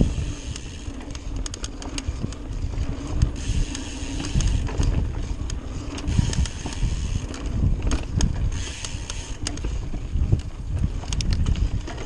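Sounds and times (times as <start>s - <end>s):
bike clicks and rattles: 0.0s - 12.0s
wind buffeting microphone: 0.0s - 12.0s.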